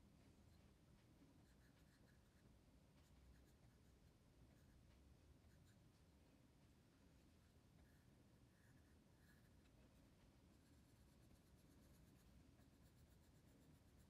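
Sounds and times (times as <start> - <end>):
pencil scratching on paper: 1.4 - 2.4, 8.6 - 14.0.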